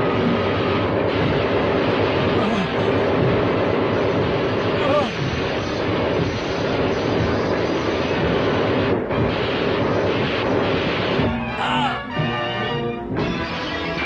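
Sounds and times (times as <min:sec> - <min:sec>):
aircraft-like engine drone: 0:00.0 - 0:11.4
orchestral music: 0:11.3 - 0:14.0.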